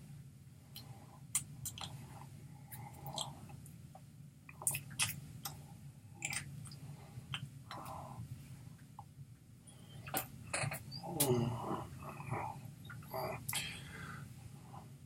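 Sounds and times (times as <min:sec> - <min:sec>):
low steady hum: 0:00.0 - 0:15.0
mouth noises: 0:10.0 - 0:13.8.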